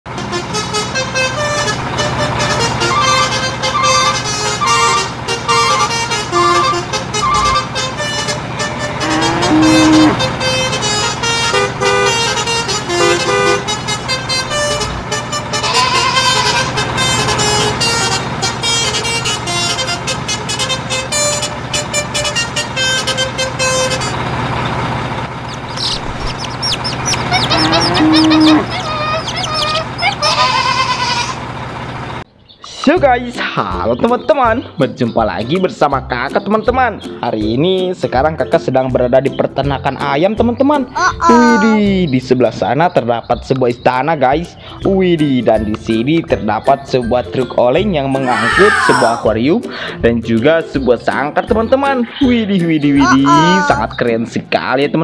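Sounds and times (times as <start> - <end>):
sliding horn-like effects: 0.1 - 24.4, 27.0 - 29.0
upbeat background music: 44.8 - 54.3.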